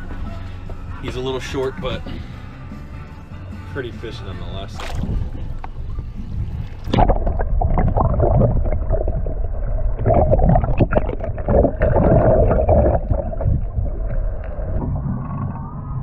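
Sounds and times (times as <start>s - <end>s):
low underwater rumble: 4.6s - 16.0s
water rushing and bubbling underwater: 4.7s - 16.0s.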